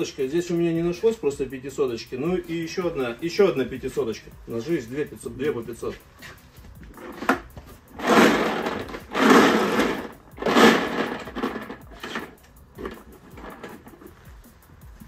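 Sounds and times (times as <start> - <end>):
hand picking through balls: 6.3 - 15.0
plastic balls rattling in drum: 7.0 - 14.2.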